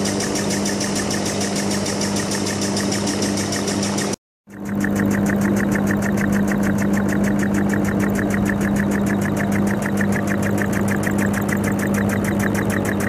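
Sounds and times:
air engine puffs and clicks: 0.0s - 13.0s
low hum: 4.5s - 13.0s.

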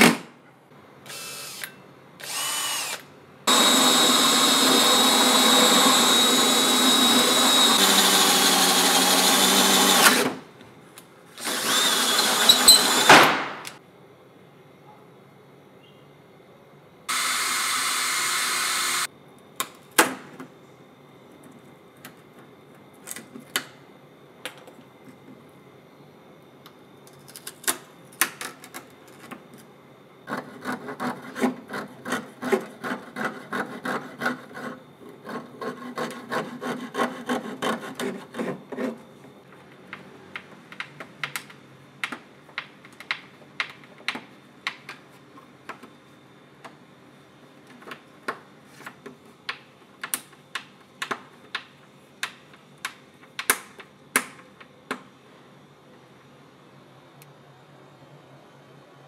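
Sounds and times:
cordless drill running: 1.1s - 10.4s, 11.4s - 13.1s, 17.1s - 19.1s
hand saw cutting wood: 3.5s - 10.4s, 30.3s - 39.0s.

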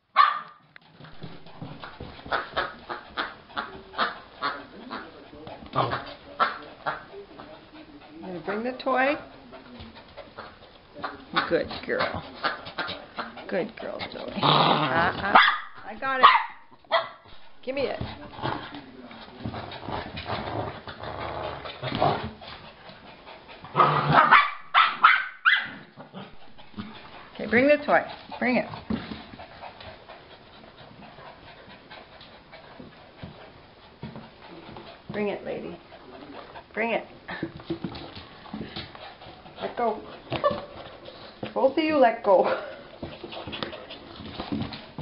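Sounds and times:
small dog yapping: 0.2s - 0.6s, 24.1s - 25.8s
dog growling: 1.0s - 15.4s, 18.0s - 22.4s, 23.5s - 24.3s.

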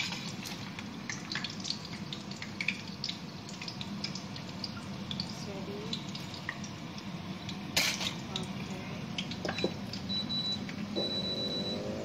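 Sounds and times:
utensils clinking on plate and pan: 7.8s - 8.2s.

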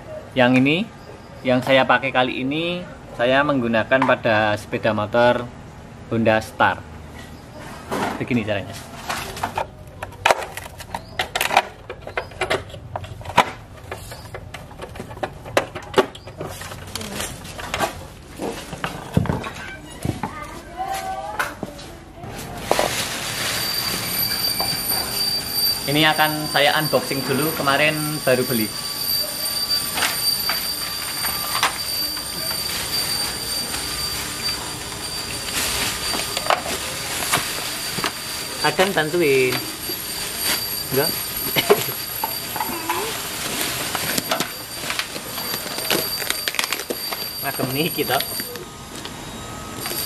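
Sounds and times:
plastic bag rustling and crinkling: 22.3s - 28.8s, 29.7s - 48.5s
steady high-pitched whine: 22.7s - 50.0s.

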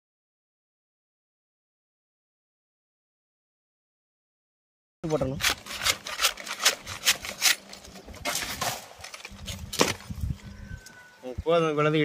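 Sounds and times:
sickle cutting palm stalks: 5.1s - 10.0s.

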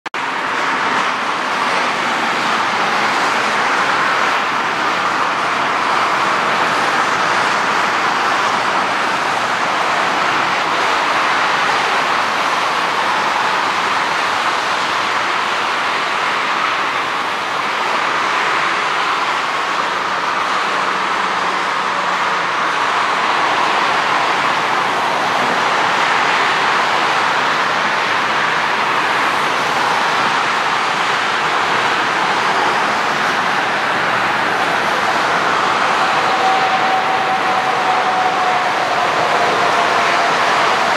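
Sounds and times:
jet engines rushing: 0.2s - 40.9s.

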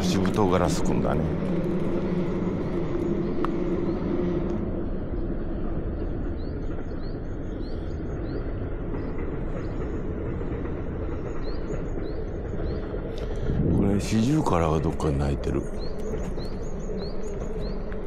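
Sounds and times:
low rumble: 12.8s - 17.2s.

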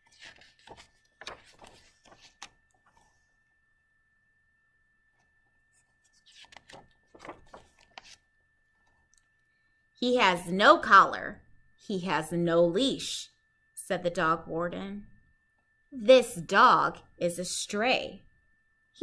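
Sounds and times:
book pages rustling: 0.0s - 3.2s, 5.7s - 8.2s.

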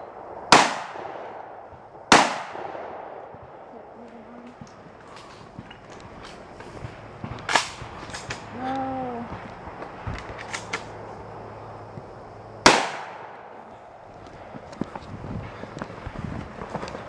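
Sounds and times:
shotgun blasts: 0.0s - 3.7s, 7.3s - 8.5s, 12.6s - 13.6s.

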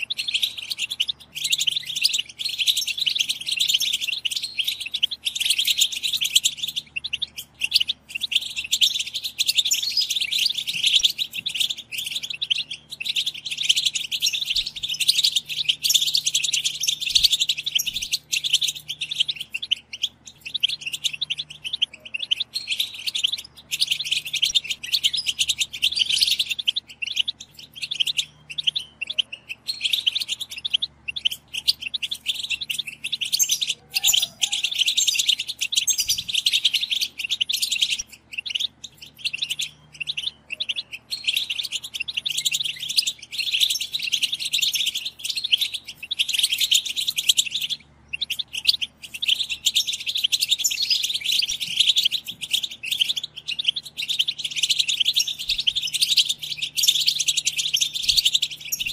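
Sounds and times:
goldfinches twittering: 0.0s - 58.9s.

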